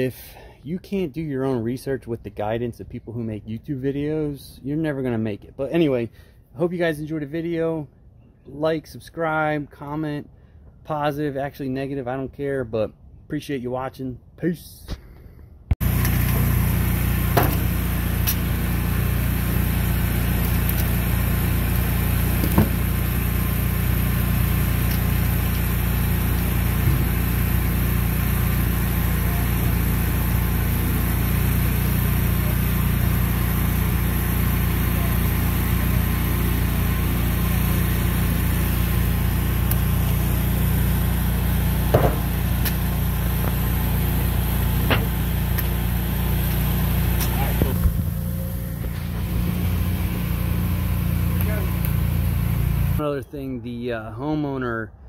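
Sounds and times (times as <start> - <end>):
pressure washer engine running: 15.8 - 53.0.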